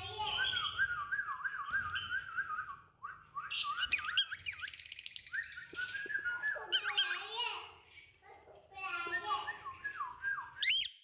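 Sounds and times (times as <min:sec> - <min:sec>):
cockatiel whistling: 0:00.3 - 0:07.0.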